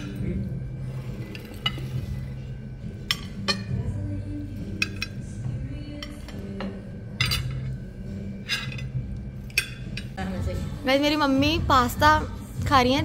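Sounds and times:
soft background music: 0:00.0 - 0:13.0
cutlery clinking on ceramic plates: 0:03.0 - 0:03.8, 0:04.7 - 0:05.2, 0:06.0 - 0:07.8, 0:08.4 - 0:10.2.

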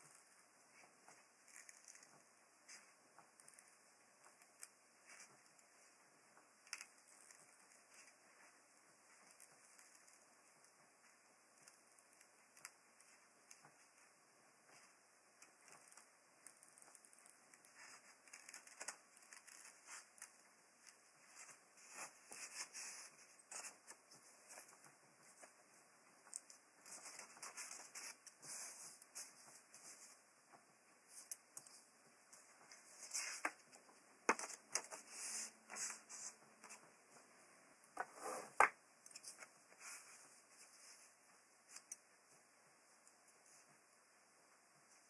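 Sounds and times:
paper rustling: 0:16.8 - 0:25.6, 0:26.3 - 0:30.2, 0:31.1 - 0:37.3.

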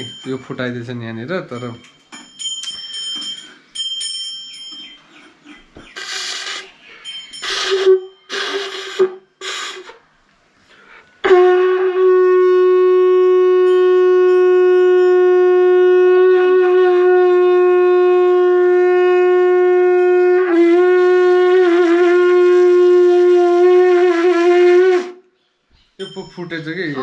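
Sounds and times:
conch shell blown: 0:07.4 - 0:10.0, 0:11.2 - 0:25.4.

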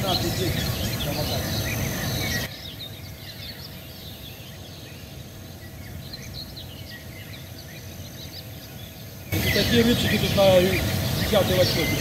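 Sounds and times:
low outdoor background: 0:00.0 - 0:12.0
small birds chirping: 0:00.0 - 0:12.0
loud rush of noise: 0:09.3 - 0:12.0.

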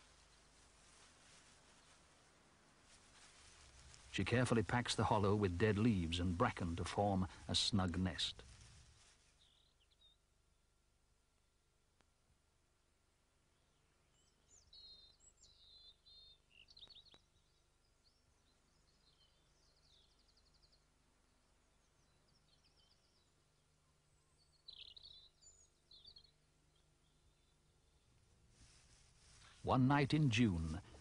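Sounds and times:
faint songbird chirps and trills: 0:09.0 - 0:10.6, 0:13.4 - 0:29.4.

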